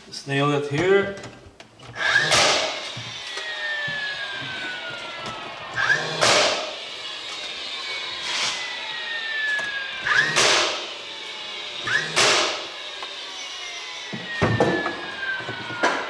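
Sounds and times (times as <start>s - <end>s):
pneumatic nail gun firing: 1.9s - 4.1s, 4.8s - 7.6s, 8.2s - 16.0s.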